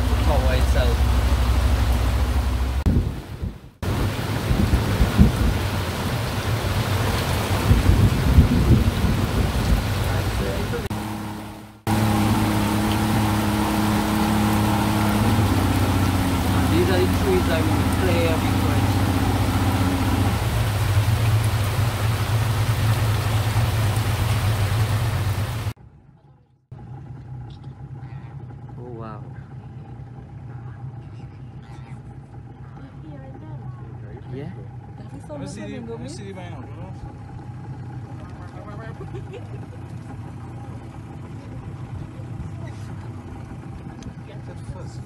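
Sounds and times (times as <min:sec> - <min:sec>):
heavy rain pouring on water: 0:00.0 - 0:25.8
low rumbling: 0:00.0 - 0:45.0
outboard motor running: 0:00.0 - 0:45.0.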